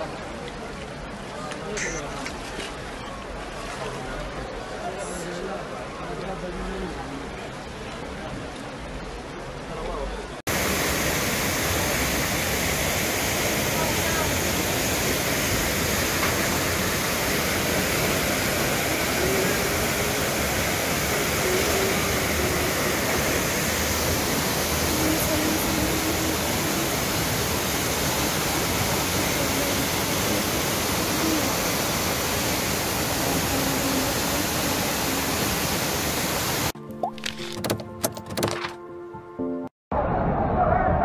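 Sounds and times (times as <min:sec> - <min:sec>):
torrential rain: 0:02.3 - 0:36.8
floodwater pouring down: 0:10.5 - 0:37.5.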